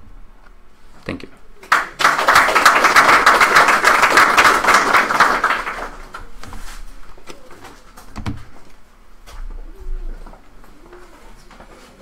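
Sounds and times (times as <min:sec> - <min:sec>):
audience applauding: 0:01.6 - 0:06.3.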